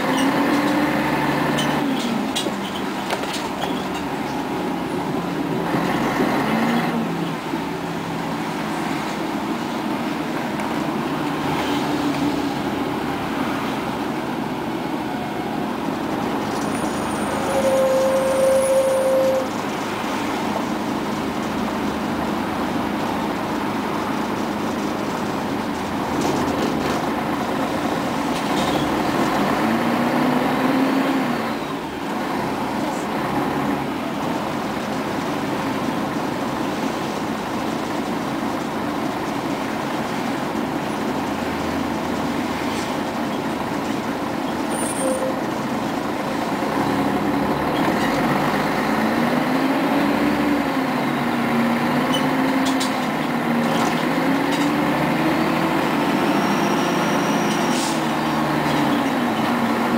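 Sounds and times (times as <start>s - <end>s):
bus diesel engine rumble: 0.0s - 59.9s
road noise: 0.0s - 59.9s.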